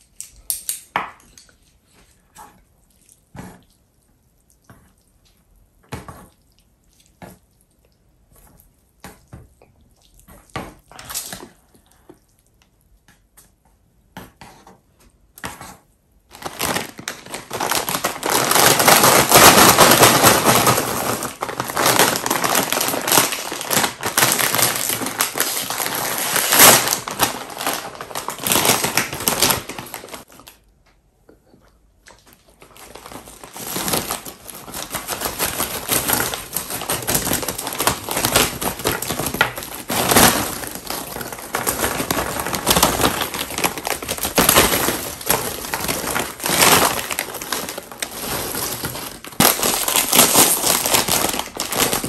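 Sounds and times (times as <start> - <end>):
foil chip bag crinkling: 16.3 - 30.6, 32.1 - 52.0.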